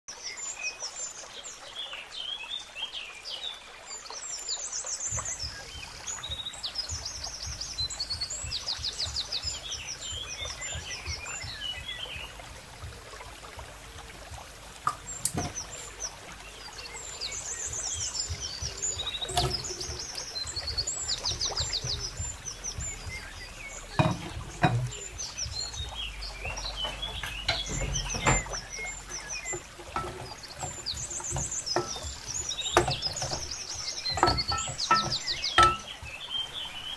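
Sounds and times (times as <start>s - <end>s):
birds chirping and trilling: 0.1s - 36.9s
sharp knocks: 23.9s - 25.0s, 26.8s - 28.7s, 29.5s - 36.1s.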